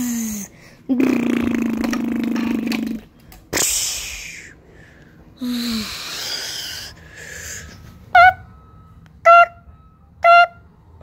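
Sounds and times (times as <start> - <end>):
child buzzing hum with mouth: 0.0 - 4.0, 5.4 - 6.8
child hissing blasts with mouth: 3.5 - 4.6.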